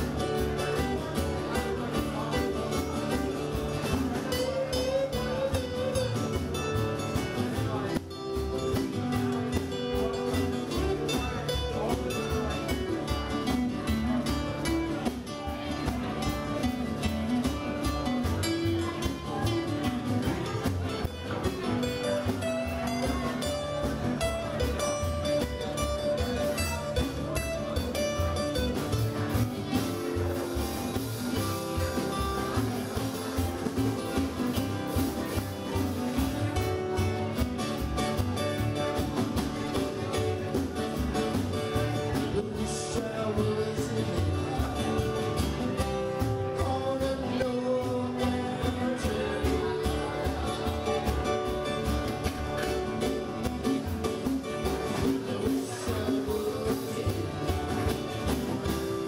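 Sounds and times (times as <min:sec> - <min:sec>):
steady drum beat: 0:00.0 - 0:59.0
strummed acoustic guitars: 0:00.0 - 0:59.0
person singing: 0:42.1 - 0:45.2, 0:54.6 - 0:59.0.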